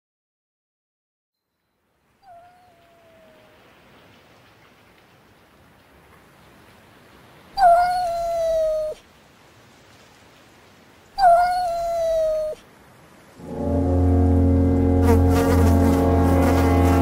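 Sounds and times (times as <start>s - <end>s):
cat yowling: 2.2s - 3.6s, 7.6s - 9.0s, 11.2s - 12.6s.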